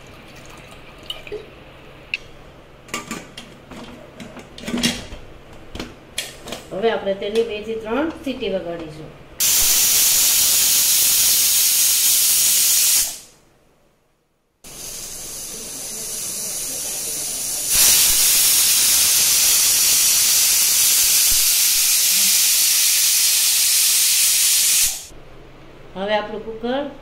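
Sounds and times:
pressure cooker whistling: 9.4s - 13.3s, 14.7s - 25.1s.

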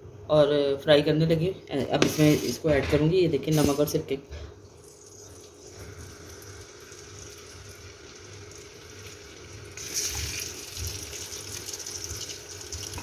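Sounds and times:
chicken frying in hot oil: 4.9s - 13.0s.

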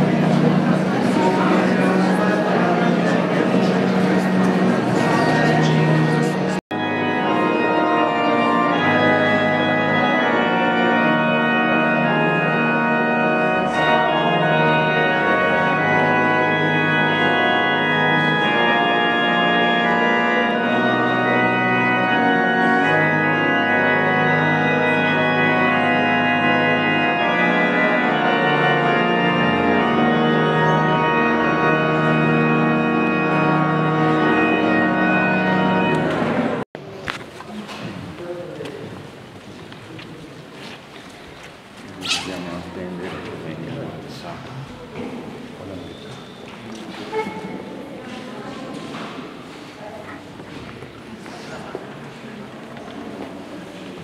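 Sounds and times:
organ music: 0.0s - 36.7s.

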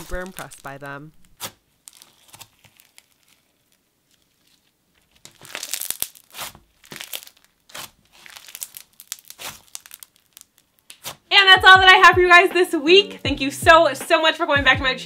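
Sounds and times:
slime crunching and crackling: 0.0s - 11.3s.

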